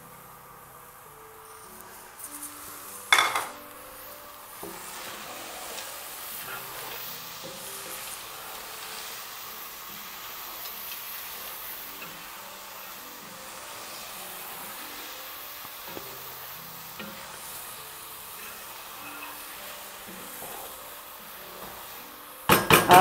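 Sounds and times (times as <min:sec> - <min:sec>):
low sizzle of cooking: 0:00.0 - 0:23.0
spatula scraping a pot: 0:04.6 - 0:09.3, 0:16.0 - 0:21.9.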